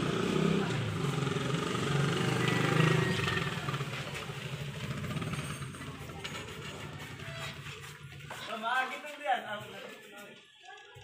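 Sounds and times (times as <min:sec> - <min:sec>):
vehicle engine pulsing: 0:00.0 - 0:08.2.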